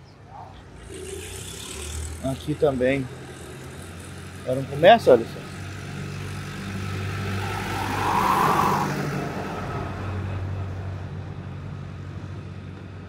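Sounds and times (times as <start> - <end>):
car passing: 0.8 - 11.2.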